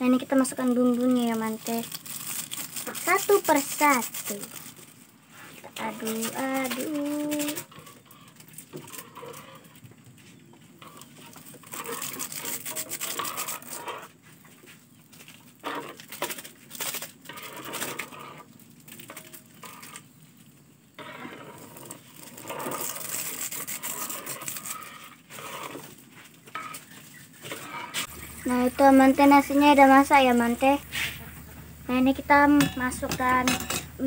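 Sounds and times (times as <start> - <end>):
plastic sachets crinkling: 0.1 - 5.1, 5.8 - 7.7, 11.3 - 13.8, 15.9 - 18.0
metal spoon scraping in wok: 5.4 - 9.9, 10.7 - 14.2, 15.6 - 16.1, 17.2 - 20.2, 20.9 - 34.0.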